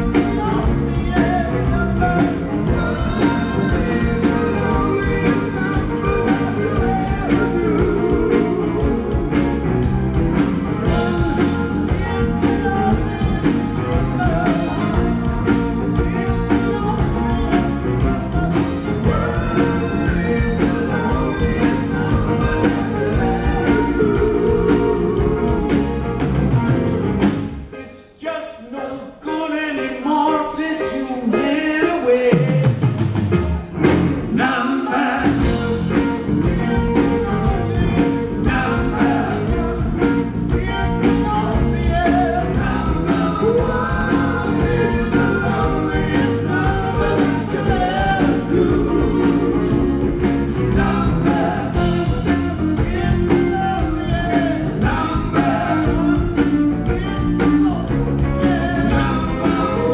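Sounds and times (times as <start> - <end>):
person singing: 0.0 - 9.8, 10.8 - 26.2, 34.3 - 59.9
rock band playing: 0.0 - 27.8, 29.8 - 59.9.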